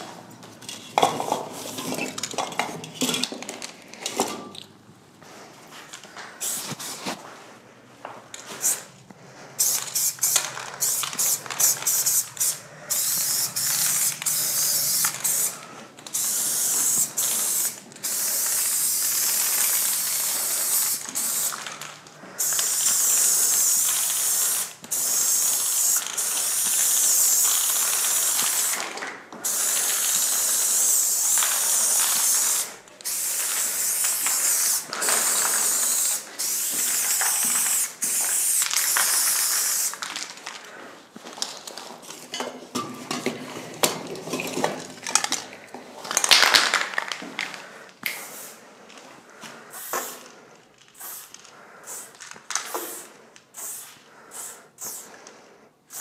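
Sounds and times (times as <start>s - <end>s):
spray paint can hissing: 6.4s - 6.9s, 9.6s - 21.8s, 22.4s - 40.0s, 48.0s - 48.6s, 49.7s - 50.3s, 50.9s - 55.1s.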